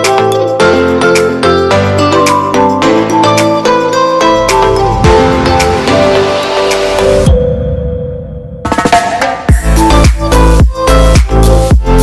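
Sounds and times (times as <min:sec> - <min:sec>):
plucked melody over chords: 0:00.0 - 0:07.7.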